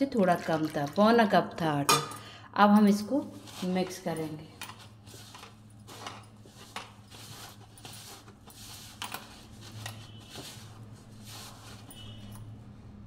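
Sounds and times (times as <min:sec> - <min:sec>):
hand mixing dough in plastic bowl: 0:02.9 - 0:12.2.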